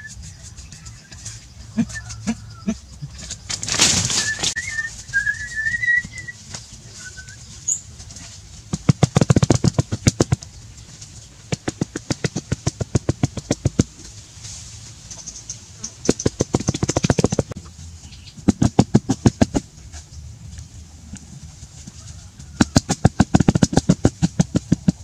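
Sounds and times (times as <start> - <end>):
bird chirping: 0.0 - 8.0, 15.0 - 18.7
hands patting turf into soil: 3.4 - 15.3.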